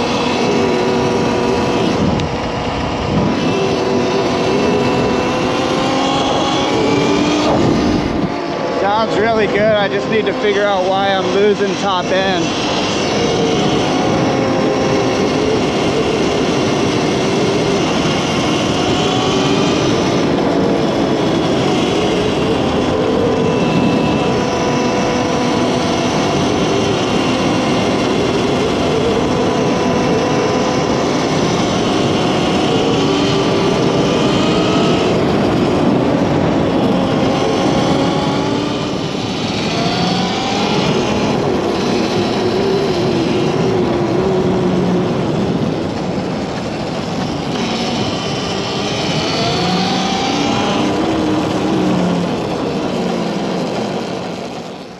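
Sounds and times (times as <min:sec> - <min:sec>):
electric motor whining: 0:00.0 - 0:54.9
steady rush of noise: 0:00.0 - 0:54.9.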